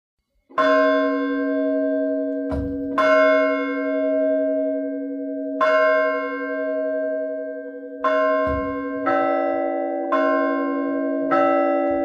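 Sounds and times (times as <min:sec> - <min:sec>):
church bell ringing: 0:00.5 - 0:12.0
short low knock: 0:02.5 - 0:03.0.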